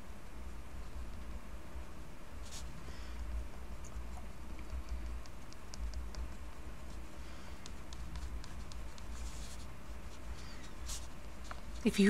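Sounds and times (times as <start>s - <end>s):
low steady hum: 0.0s - 12.0s
pen tip ticking on paper: 4.7s - 6.6s.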